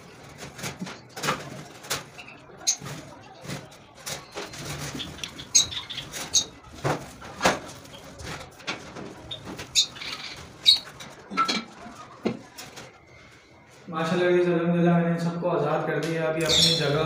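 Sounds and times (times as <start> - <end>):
birds fluttering in cage: 0.0 - 13.8.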